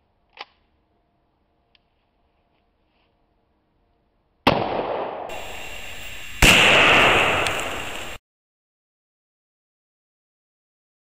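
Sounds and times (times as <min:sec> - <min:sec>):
rifle shots with echo: 0:04.5 - 0:05.6, 0:06.3 - 0:08.2.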